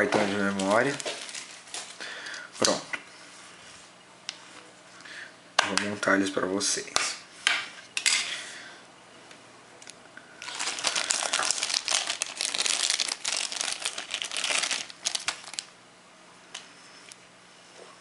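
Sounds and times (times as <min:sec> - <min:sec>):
plastic bag crinkling: 0:00.0 - 0:02.0, 0:10.4 - 0:15.7.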